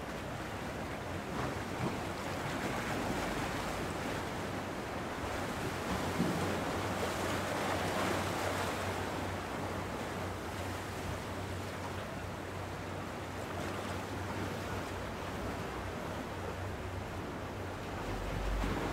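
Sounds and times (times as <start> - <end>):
sea waves washing on shore: 0.0 - 18.9
low hum: 16.9 - 18.9.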